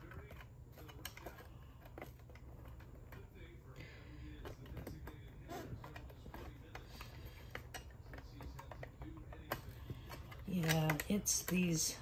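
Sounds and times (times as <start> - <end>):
low steady hum: 0.0 - 12.0
plastic clicks and taps: 5.9 - 11.6.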